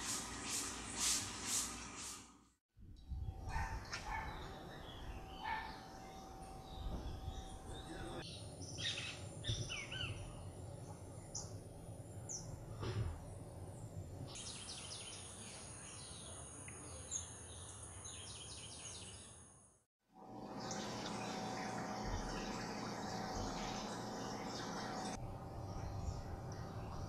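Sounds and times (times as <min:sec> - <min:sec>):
birds chirping and calling: 0:03.5 - 0:10.5.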